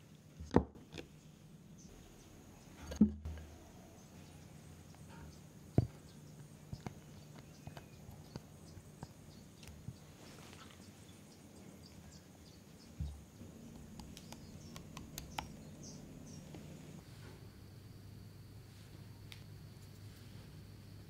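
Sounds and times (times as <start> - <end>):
faint hum: 1.0 - 21.0
spatula clicks and taps: 13.8 - 15.6.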